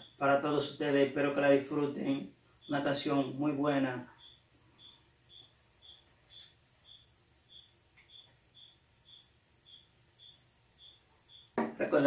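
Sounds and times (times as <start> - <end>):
cricket chirping: 0.0 - 12.0
crickets trilling: 0.0 - 12.0.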